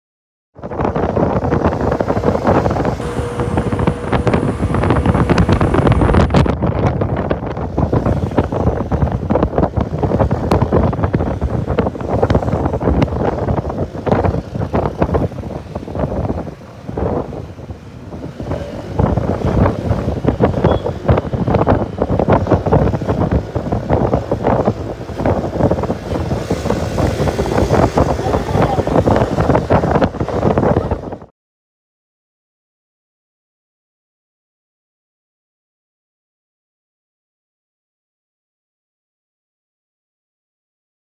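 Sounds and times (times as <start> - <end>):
road and traffic noise: 0.6 - 31.3
wind buffeting microphone: 0.6 - 31.3.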